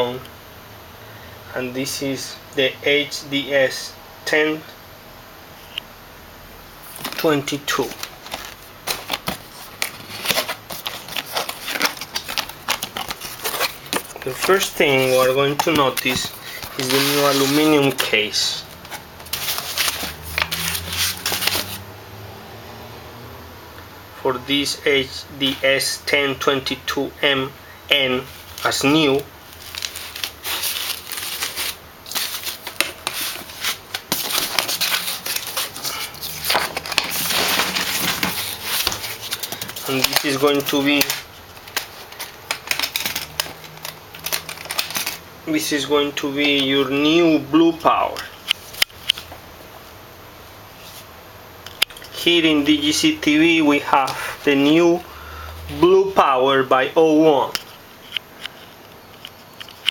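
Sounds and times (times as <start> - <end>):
cardboard box rustling and scraping: 7.8 - 18.1, 18.8 - 21.8, 29.5 - 43.2.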